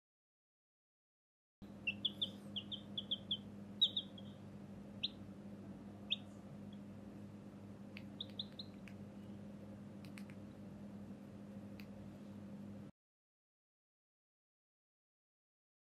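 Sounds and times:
baby chick peeping: 0:01.6 - 0:07.1, 0:07.9 - 0:10.5
steady low hum: 0:01.6 - 0:12.9.

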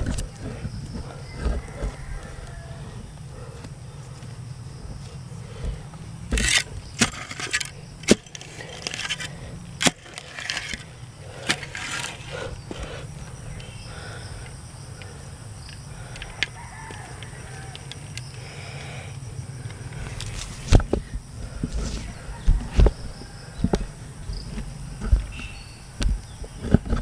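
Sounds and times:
digging in soil by hand: 0:04.9 - 0:13.7.

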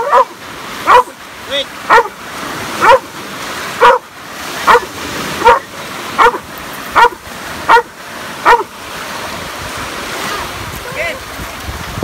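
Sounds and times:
dog barking: 0:00.0 - 0:01.2, 0:01.9 - 0:02.2, 0:02.8 - 0:03.1, 0:03.8 - 0:08.7
small waves breaking: 0:00.0 - 0:12.0.

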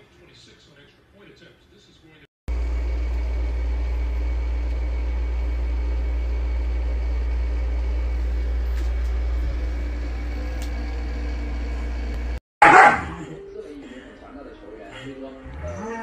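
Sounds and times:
low rumble with faint hum: 0:02.5 - 0:12.4.

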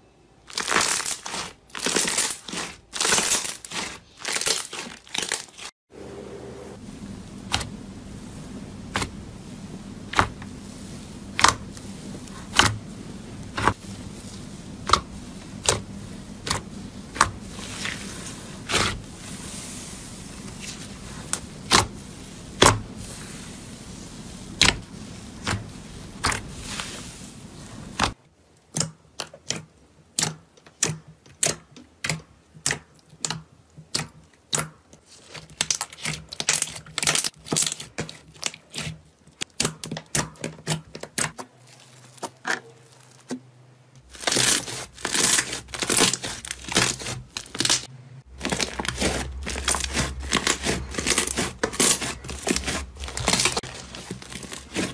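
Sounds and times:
slime crackling: 0:00.5 - 0:05.7, 0:08.7 - 0:28.2, 0:29.2 - 0:54.9
low hum: 0:05.9 - 0:26.2.

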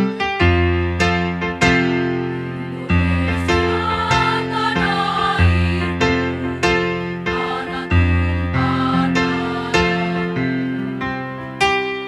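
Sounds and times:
electric keyboard piano chords: 0:00.0 - 0:12.0
women's choir singing: 0:02.3 - 0:10.9.

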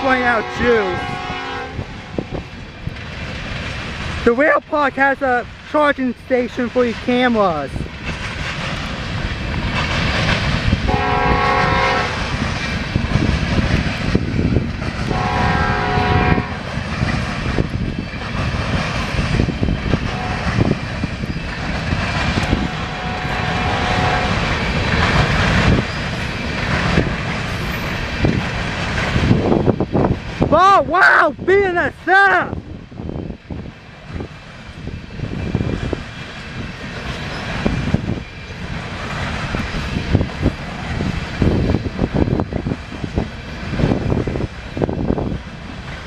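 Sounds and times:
locomotive horn: 0:00.0 - 0:02.3, 0:10.9 - 0:12.2, 0:15.1 - 0:16.6, 0:20.1 - 0:20.5, 0:22.5 - 0:24.4
freight train rumble and wheel clatter: 0:00.0 - 0:46.0.

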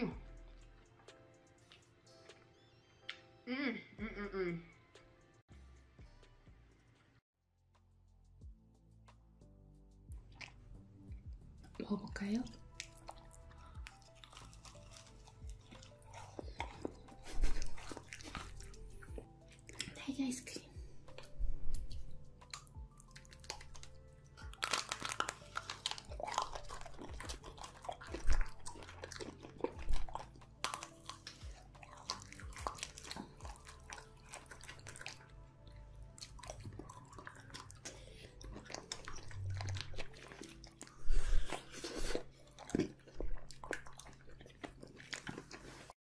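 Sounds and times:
quiet chewing: 0:12.6 - 0:46.0
ice cream coating crunching: 0:12.8 - 0:19.9, 0:21.9 - 0:45.9.

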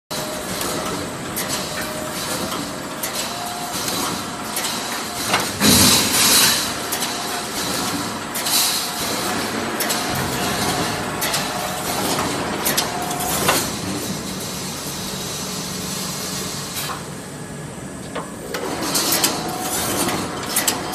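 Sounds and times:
sharp machine clicks and knocks: 0:00.1 - 0:14.4, 0:18.5 - 0:20.9
steady machine noise: 0:00.1 - 0:20.9.

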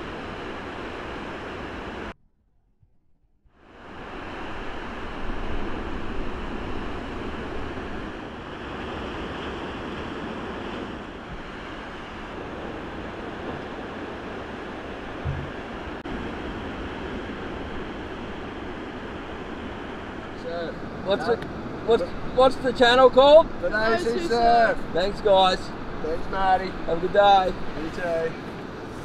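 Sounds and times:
ocean surf breaking: 0:00.0 - 0:02.1, 0:03.6 - 0:29.0
low thump: 0:15.2 - 0:15.6.

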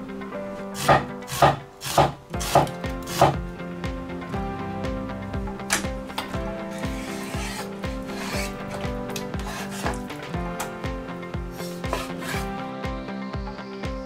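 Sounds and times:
background music with a beat: 0:00.0 - 0:14.0.

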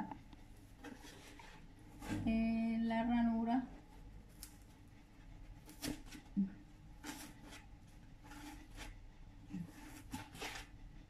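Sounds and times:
blade scratching styrofoam: 0:07.0 - 0:10.8.

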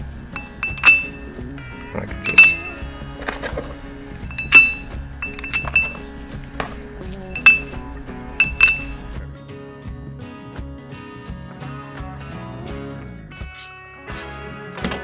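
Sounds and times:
metallic clinks: 0:00.3 - 0:01.4, 0:02.2 - 0:09.2.

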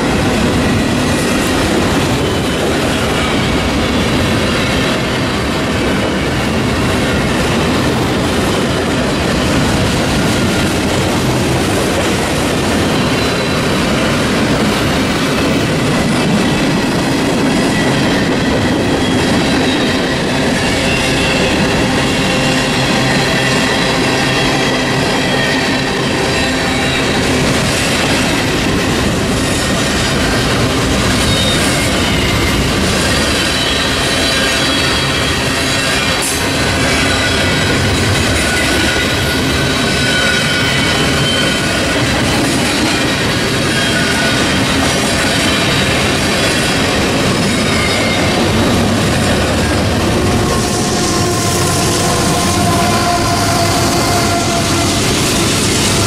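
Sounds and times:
train wheels rumbling on rails: 0:00.0 - 0:56.0
high wheel squeal: 0:12.8 - 0:14.2, 0:17.4 - 0:56.0.

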